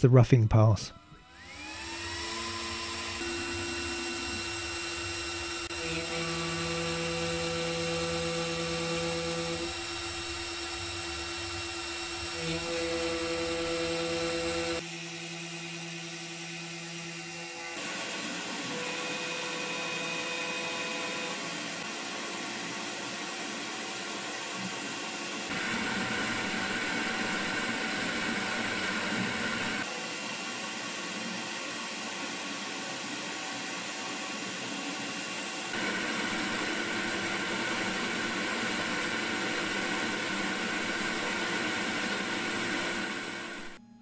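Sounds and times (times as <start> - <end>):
vacuum dust extraction: 1.2 - 14.8, 24.8 - 43.8
cnc spindle milling: 1.2 - 43.8.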